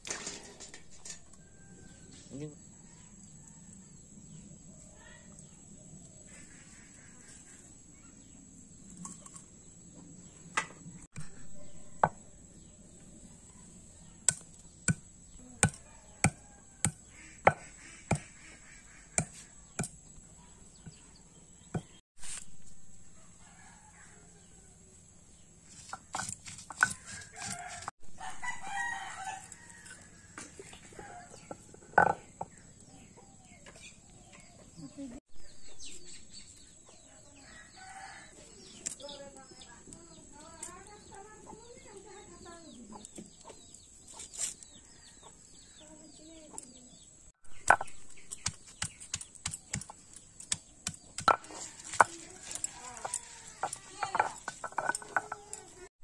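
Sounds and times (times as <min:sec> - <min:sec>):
rooster crowing: 0:23.2 - 0:24.9, 0:27.0 - 0:31.6
stone knocking on stone slab: 0:32.0 - 0:32.5, 0:47.6 - 0:48.0.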